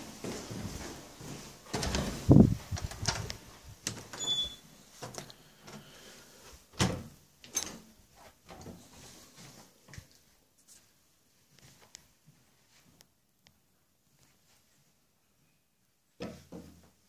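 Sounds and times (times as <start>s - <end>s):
short high door squeak: 4.2s - 4.6s.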